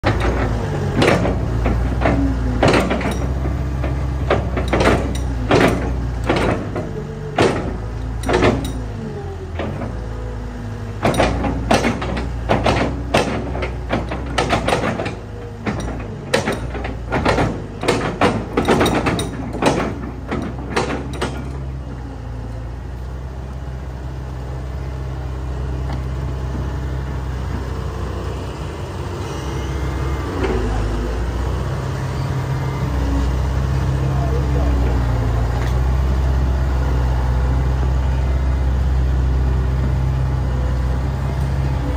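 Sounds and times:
excavator bucket clanking: 0.0 - 22.6, 25.7 - 31.7
excavator diesel engine running: 0.0 - 41.9
hydraulics working: 0.0 - 41.9.

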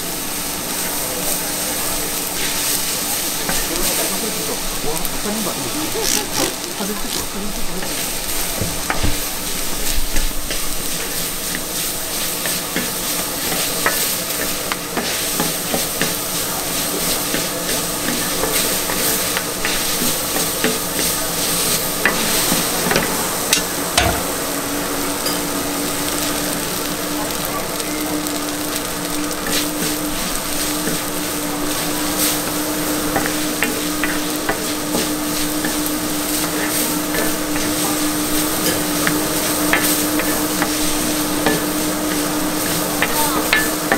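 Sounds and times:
food sizzling on griddle: 0.0 - 43.9
steady hum: 3.0 - 8.7.

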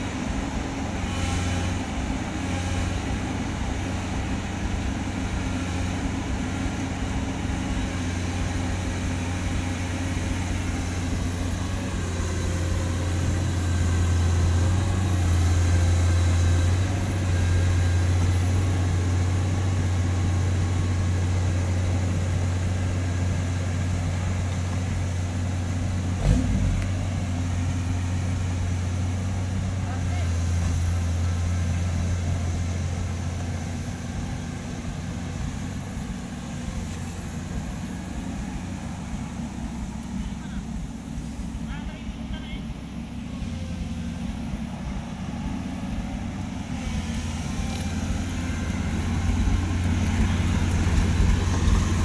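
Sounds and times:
diesel engines running: 0.0 - 52.0
strong low hum: 30.4 - 52.0.

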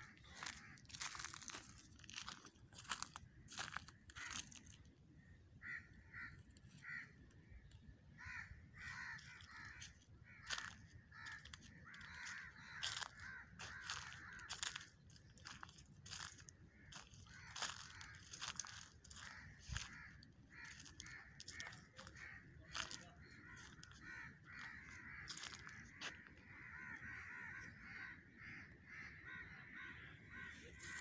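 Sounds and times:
crows cawing: 0.0 - 31.0
footsteps crunching through leaves: 0.1 - 4.8, 8.9 - 27.4, 30.4 - 31.0.

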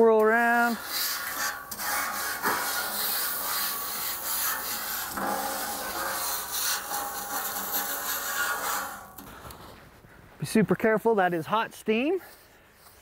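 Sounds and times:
water steaming on hot steel: 0.3 - 9.5
chain mail scrubber rasping on griddle: 0.4 - 9.5.

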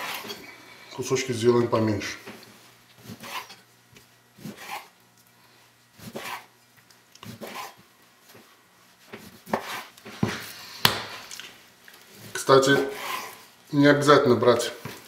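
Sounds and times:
knife slicing meat on wooden board: 3.0 - 3.6, 4.4 - 4.9, 6.0 - 6.5, 7.2 - 7.8, 9.1 - 10.0.

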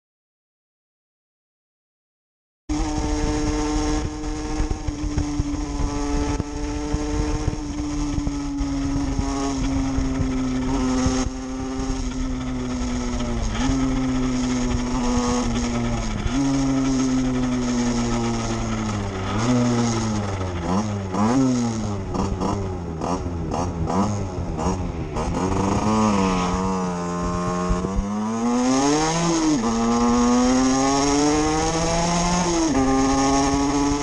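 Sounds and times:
motorcycle engine at high revs: 2.7 - 34.0
wind rush: 3.0 - 29.9.

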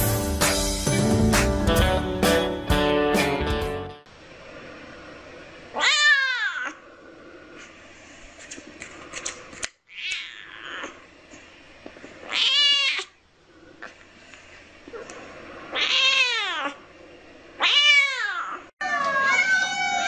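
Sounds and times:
kitten meowing: 12.3 - 13.1, 17.6 - 20.0.

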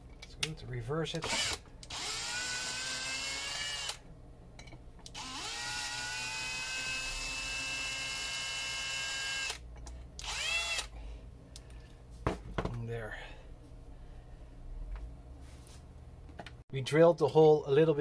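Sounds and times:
cordless drill motor whining: 1.2 - 4.0, 5.1 - 9.6, 10.2 - 10.9.

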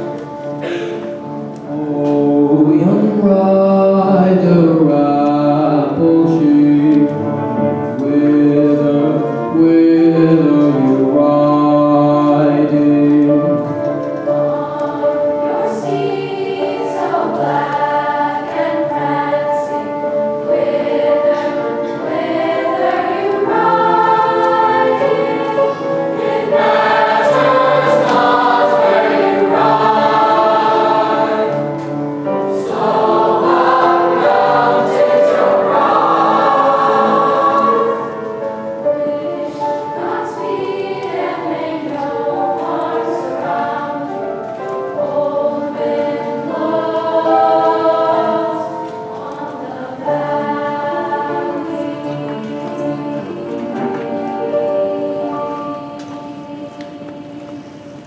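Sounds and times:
choir singing: 0.0 - 58.0
piano accompaniment: 0.0 - 58.0.

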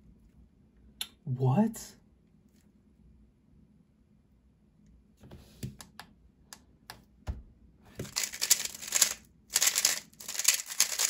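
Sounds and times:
cube clicks: 8.0 - 11.0
speedcube layers clattering: 8.0 - 11.0.

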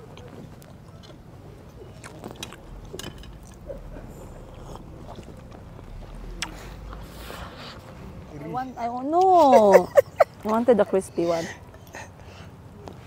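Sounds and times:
chewing: 0.0 - 7.1.

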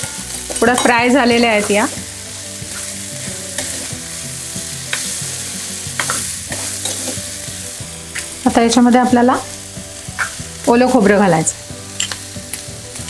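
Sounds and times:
food sizzling in oil: 0.0 - 13.0
steel spoon scraping pan: 2.7 - 4.0, 5.9 - 7.2.

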